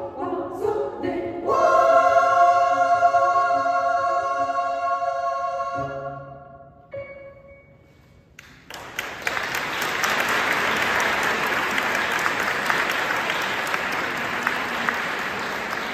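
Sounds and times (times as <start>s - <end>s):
women's choir singing: 0.0s - 6.4s
audience applause: 8.6s - 15.9s.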